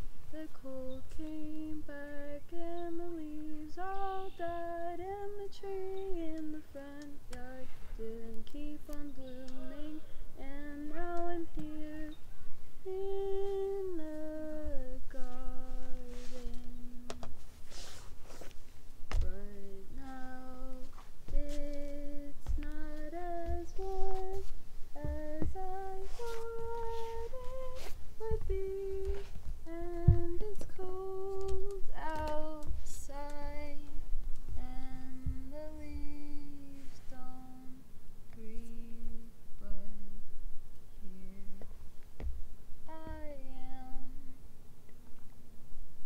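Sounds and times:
person humming a melody: 0.3 - 12.2, 12.8 - 17.3, 19.2 - 33.9, 34.6 - 40.1, 42.9 - 44.4
soft low knocks: 19.1 - 33.8.

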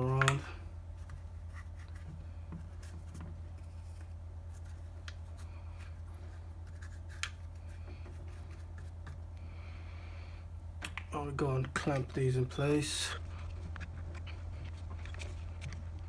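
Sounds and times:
steady low hum: 0.0 - 16.0
paintbrush clicks and scratches: 1.0 - 9.3.

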